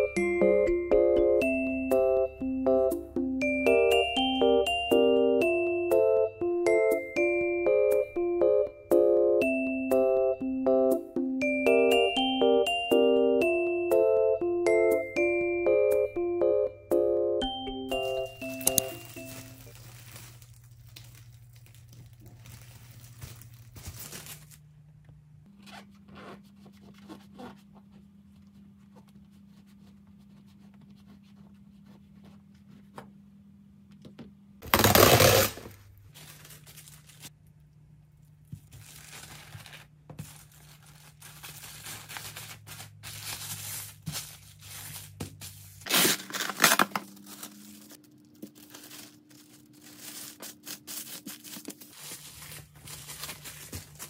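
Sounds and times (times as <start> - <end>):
plastic film crinkling: 18.0 - 24.7, 34.6 - 37.4, 38.5 - 54.0
cling wrap ripping: 18.5 - 24.6, 34.6 - 37.3, 38.7 - 45.2, 45.8 - 54.0.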